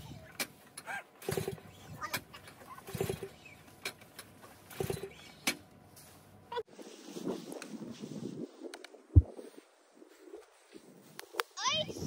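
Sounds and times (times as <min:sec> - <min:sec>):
snowblower engine cranking: 0:00.4 - 0:05.6.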